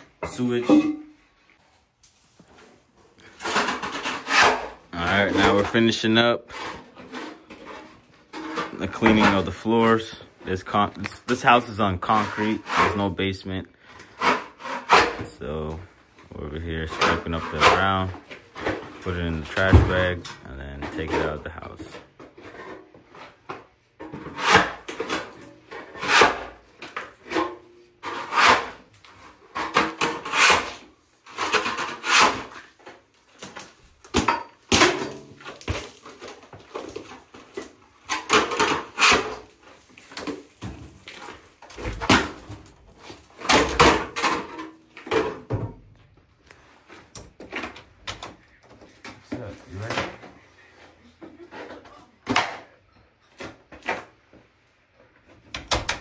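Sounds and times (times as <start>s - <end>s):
floor scraper scraping concrete: 3.2s - 15.3s, 16.6s - 18.1s, 28.0s - 32.9s.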